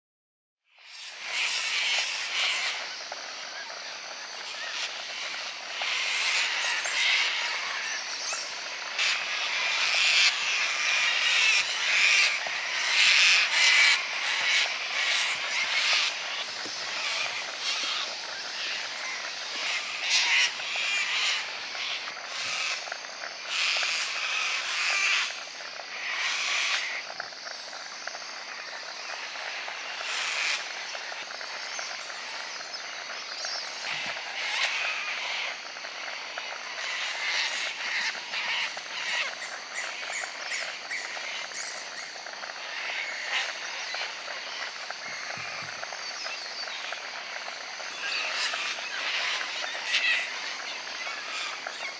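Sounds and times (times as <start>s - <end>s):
cockatoos screeching: 1.2s - 27.4s, 33.5s - 51.9s.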